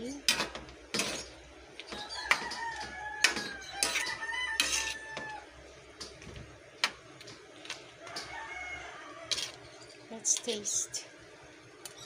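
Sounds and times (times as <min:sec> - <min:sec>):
spatula scraping a wok: 0:00.3 - 0:05.4
rooster crowing: 0:01.9 - 0:05.6, 0:08.0 - 0:09.6.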